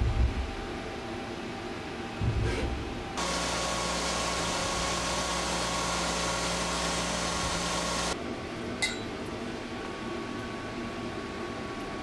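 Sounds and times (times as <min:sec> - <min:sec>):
milling machine hiss and whine: 0:03.0 - 0:08.2
light metal clink: 0:08.8 - 0:09.1.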